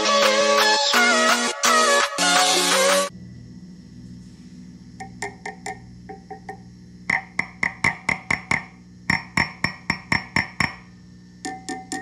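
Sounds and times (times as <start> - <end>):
amplifier hum: 3.1 - 12.0
stick tapping amp tubes: 5.0 - 12.0.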